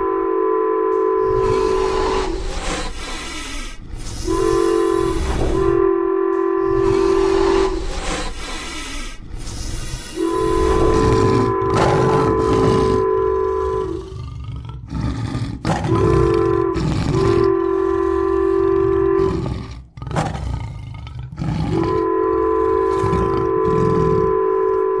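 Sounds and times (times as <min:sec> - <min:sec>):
train horn blasts: 0:00.0 - 0:02.4, 0:04.2 - 0:07.9, 0:10.2 - 0:14.1, 0:15.9 - 0:19.7, 0:21.8 - 0:25.0
train rumbling on rails: 0:00.0 - 0:25.0.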